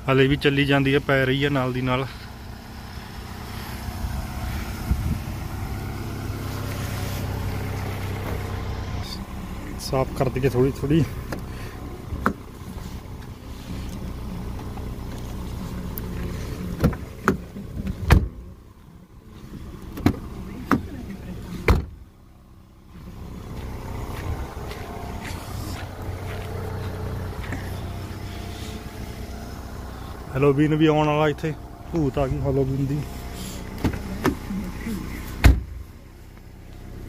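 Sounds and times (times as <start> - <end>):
car engine idling: 0.0 - 37.0
scraping snow off window: 6.4 - 7.4.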